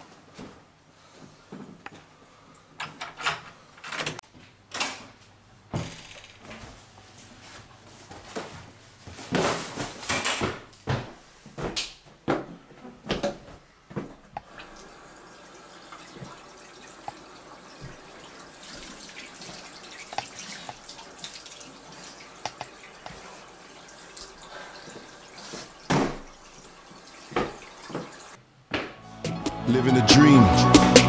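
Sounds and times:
door opening with clicks and thuds: 0:02.8 - 0:06.6.

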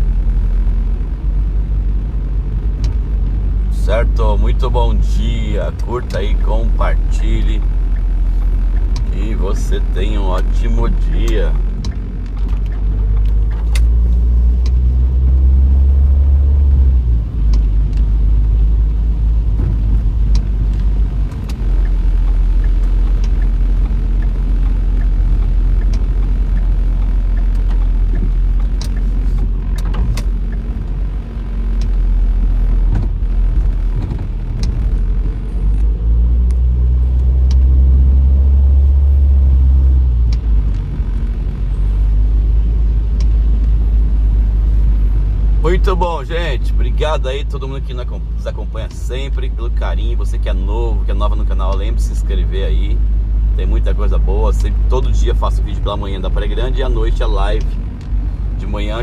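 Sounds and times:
car cabin road rumble: 0:00.0 - 0:59.0
light ticks: 0:02.7 - 0:03.2, 0:07.3 - 0:10.5, 0:11.1 - 0:14.9, 0:17.4 - 0:18.1, 0:20.0 - 0:31.1, 0:31.7 - 0:32.0, 0:32.9 - 0:35.0, 0:35.8 - 0:37.8, 0:40.2 - 0:41.3, 0:43.1 - 0:43.8, 0:51.5 - 0:51.9.

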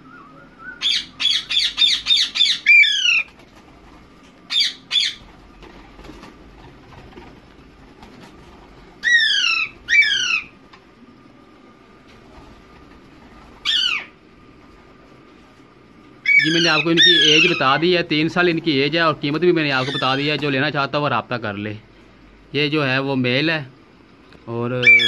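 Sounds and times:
parakeets screeching: 0:00.8 - 0:03.4, 0:04.5 - 0:06.3, 0:08.9 - 0:10.6, 0:13.4 - 0:14.2, 0:16.2 - 0:20.8, 0:24.8 - 0:25.0.

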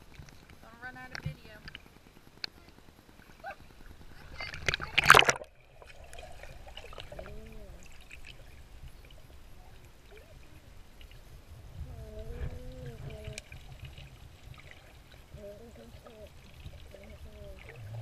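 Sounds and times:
muffled underwater rumble: 0:00.0 - 0:18.0
splash into pool water: 0:04.4 - 0:05.5.

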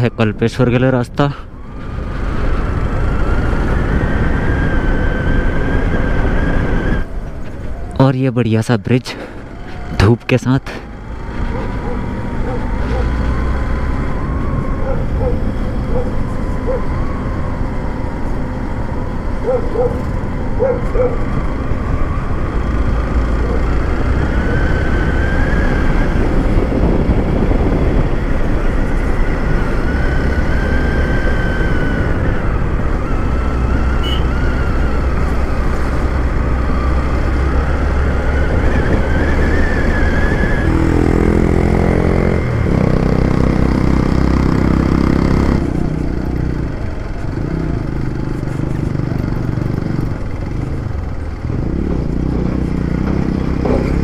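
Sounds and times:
wind noise: 0:01.6 - 0:08.0, 0:23.7 - 0:46.6
motorcycle engine running: 0:11.0 - 0:14.0, 0:14.6 - 0:24.7, 0:40.7 - 0:54.0.

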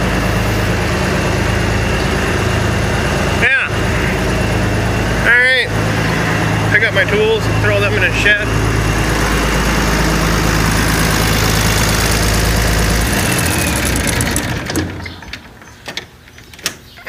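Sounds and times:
tractor engine running: 0:00.0 - 0:17.0
sharp clicks and knocks: 0:14.2 - 0:16.9.

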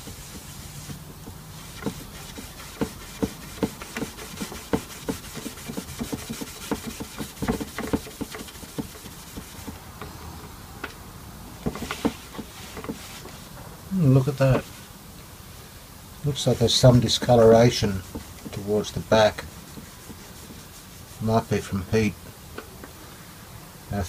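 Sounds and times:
steel wool scrubbing: 0:00.0 - 0:09.9, 0:11.6 - 0:13.5, 0:16.3 - 0:21.8.

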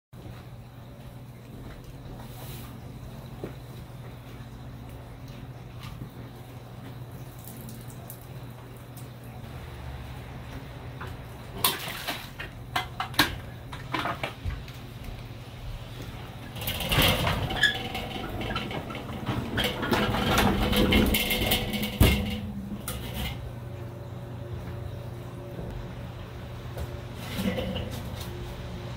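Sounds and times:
grill rolling over wooden boards: 0:09.4 - 0:23.9, 0:24.6 - 0:28.9
grill knocking down: 0:16.3 - 0:23.5
metal clanks: 0:16.5 - 0:23.5.

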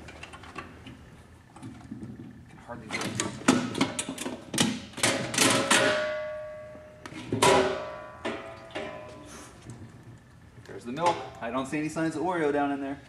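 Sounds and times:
metal clanks and knocks: 0:01.6 - 0:09.3
steel drum ringing: 0:05.7 - 0:09.5.

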